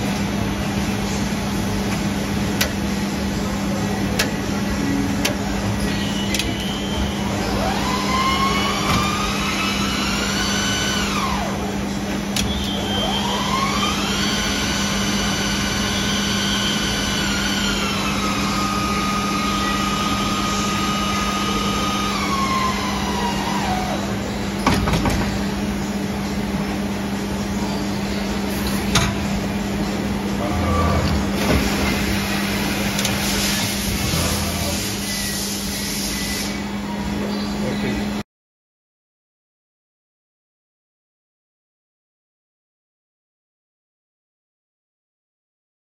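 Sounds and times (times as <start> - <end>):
lathe spindle whine: 5.5 - 24.5
lathe hum: 6.6 - 24.2.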